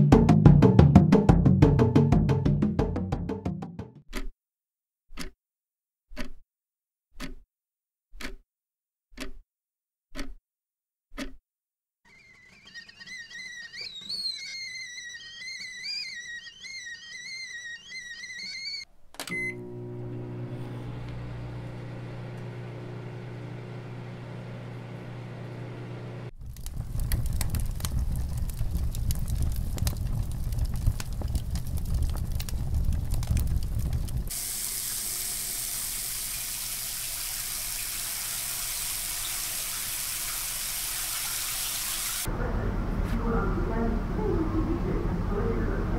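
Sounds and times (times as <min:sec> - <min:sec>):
click: 0:05.1 - 0:05.4, 0:06.1 - 0:06.4, 0:07.2 - 0:07.4, 0:08.2 - 0:08.4, 0:09.2 - 0:09.4, 0:10.1 - 0:10.4, 0:11.2 - 0:11.4, 0:19.1 - 0:19.4
kettle whistling: 0:12.1 - 0:26.8, 0:34.3 - 0:42.3
microwave oven humming: 0:19.2 - 0:26.4.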